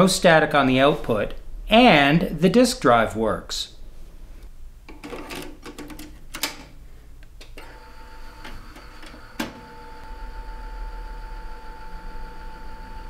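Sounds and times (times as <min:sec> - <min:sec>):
disk drive clicks and clunks: 0:07.4 - 0:10.2
disk drive motor whirring hum: 0:07.6 - 0:13.0.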